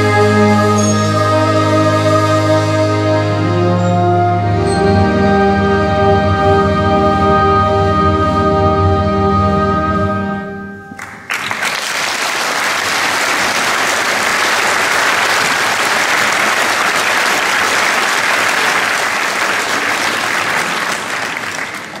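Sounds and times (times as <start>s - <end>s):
audience applause: 11.0s - 22.0s.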